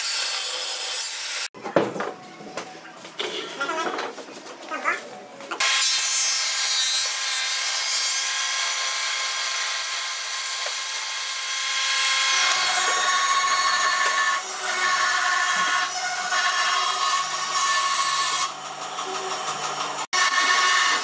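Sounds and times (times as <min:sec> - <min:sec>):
table saw blade whine: 0:20.2 - 0:21.0.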